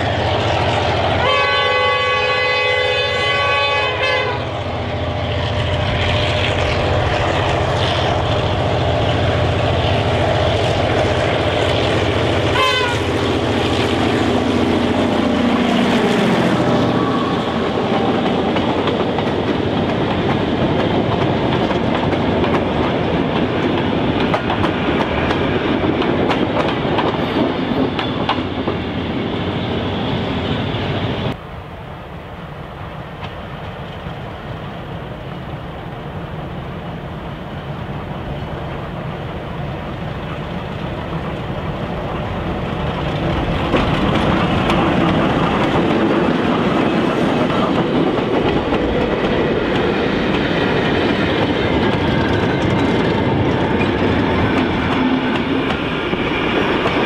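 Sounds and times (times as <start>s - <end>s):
diesel locomotive passing: 0.0s - 57.0s
train wheels clacking over rail joints: 5.2s - 28.8s, 40.3s - 57.0s.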